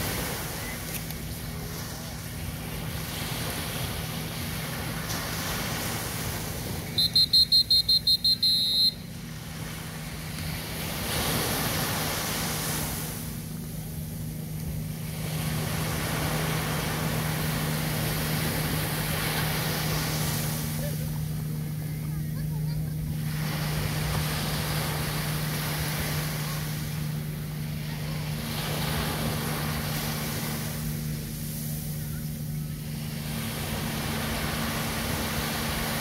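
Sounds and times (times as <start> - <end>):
small waves breaking on beach: 0.0 - 36.0
steady low hum: 0.0 - 36.0
loud high-pitched beeps: 7.0 - 9.0.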